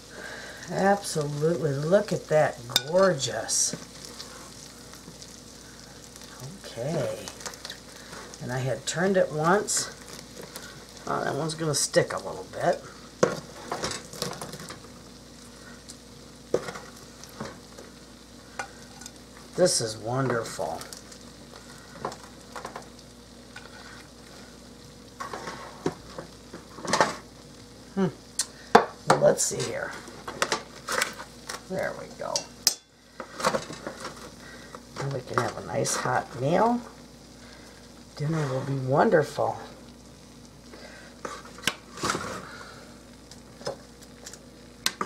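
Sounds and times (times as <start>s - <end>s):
faint steady hiss: 0.0s - 45.0s
hot fat sizzling on a pan: 0.0s - 45.0s
metal tongs scraping a pan: 2.7s - 4.6s, 18.6s - 19.2s, 32.3s - 34.3s.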